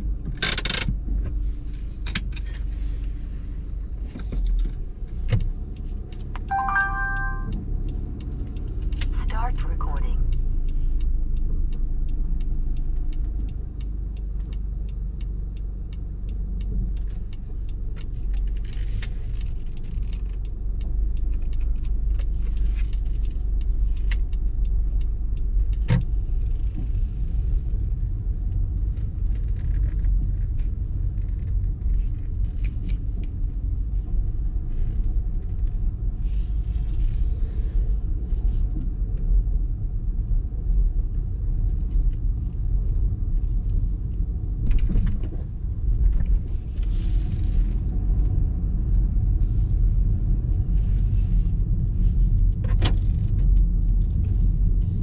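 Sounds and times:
car road and engine rumble: 0:00.0 - 0:55.0.

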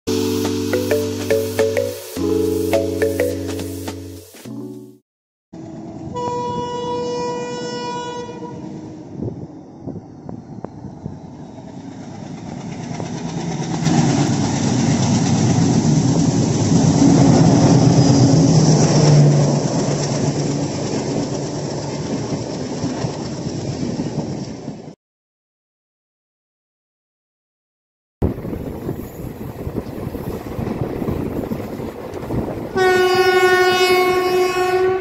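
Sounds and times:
train horn: 0:05.9 - 0:09.1, 0:32.7 - 0:35.0
train wheels clattering on rails: 0:11.7 - 0:24.9.

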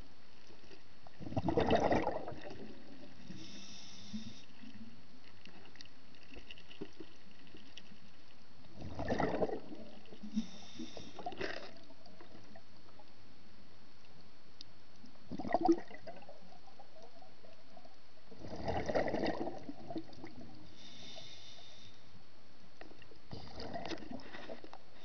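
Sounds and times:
bubbling gurgling bursts: 0:01.2 - 0:03.0, 0:08.8 - 0:10.0, 0:15.3 - 0:16.2, 0:18.4 - 0:20.4
underwater hiss: 0:03.1 - 0:04.8, 0:10.0 - 0:11.7, 0:20.6 - 0:22.2.

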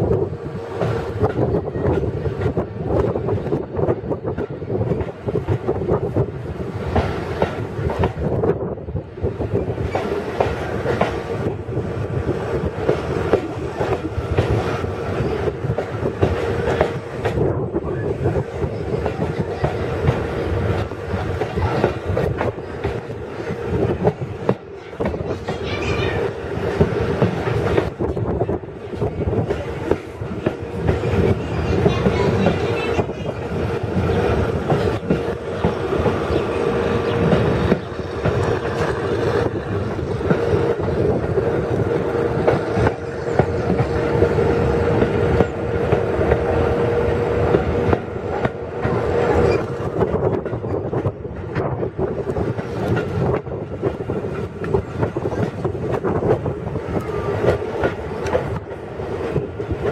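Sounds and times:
train carriage rumble: 0:00.0 - 0:59.9
wheels clicking over rail joints: 0:18.6 - 0:59.9.

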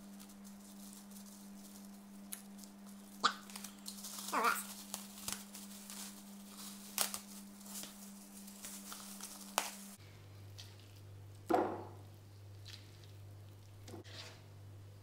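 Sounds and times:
plastic bag crinkling: 0:00.0 - 0:10.0
low steady hum: 0:00.0 - 0:15.0.

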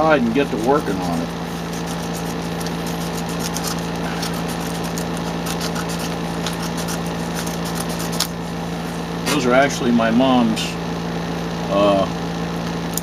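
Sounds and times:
air conditioner humming: 0:00.0 - 0:13.0
scissors cutting plastic: 0:00.7 - 0:08.4.

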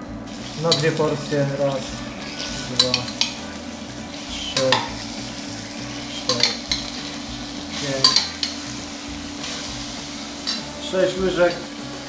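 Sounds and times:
sugar sizzling in frying pan: 0:00.2 - 0:12.0
metal spoon clinking on bowl: 0:08.0 - 0:08.6.

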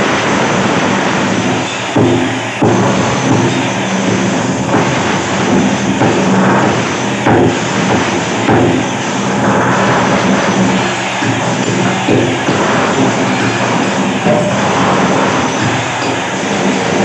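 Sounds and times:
demolition hammer clattering: 0:00.6 - 0:17.0.

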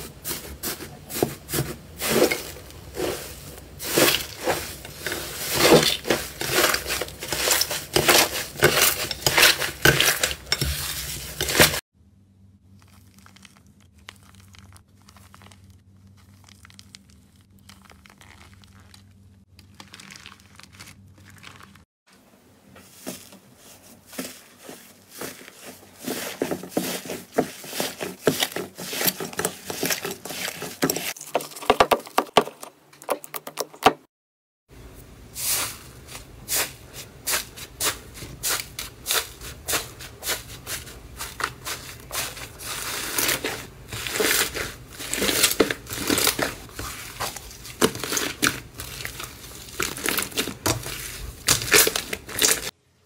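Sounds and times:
slime crackling and popping: 0:12.7 - 0:21.8, 0:42.6 - 0:52.7.

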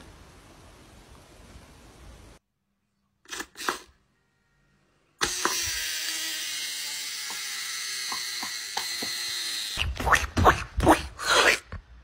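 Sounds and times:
small motor whirring: 0:03.3 - 0:09.8.

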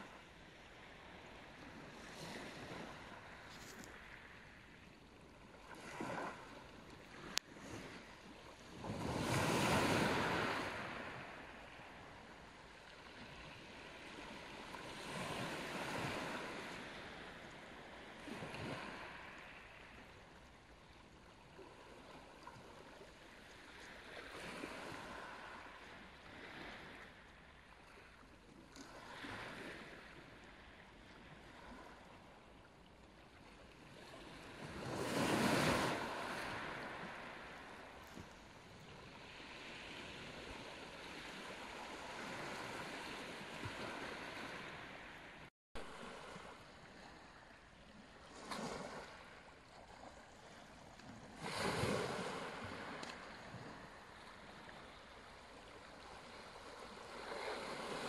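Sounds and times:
waves washing over pebbles: 0:05.6 - 0:12.1, 0:34.0 - 0:38.3, 0:45.9 - 0:58.0.

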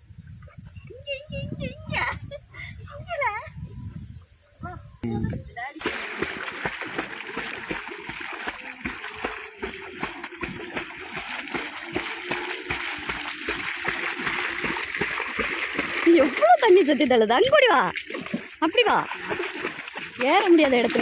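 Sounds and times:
dog splashing through water: 0:05.8 - 0:21.0.

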